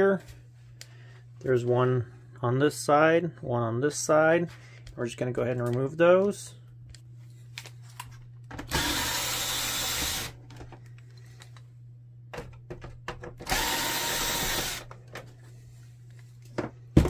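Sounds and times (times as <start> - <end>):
electric screwdriver running: 8.7 - 10.4, 13.5 - 14.9.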